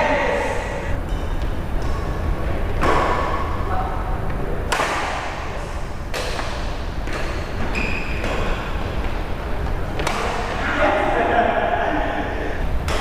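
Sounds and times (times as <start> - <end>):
rackets hitting shuttlecock: 4.7 - 5.5, 6.1 - 7.5, 9.9 - 10.6, 12.8 - 13.0.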